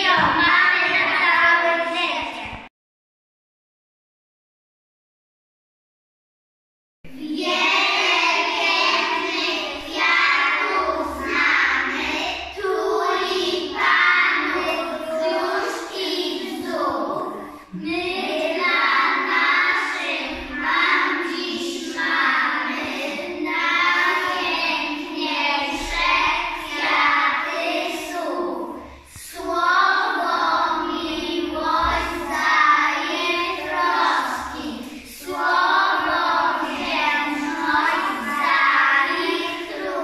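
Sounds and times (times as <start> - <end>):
children singing in unison: 7.1 - 40.0.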